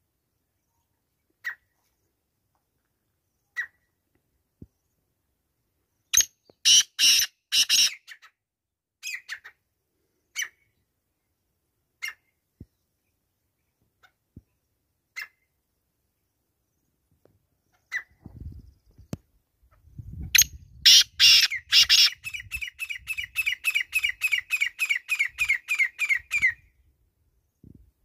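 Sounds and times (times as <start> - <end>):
francolin calling: 20.4 - 26.7.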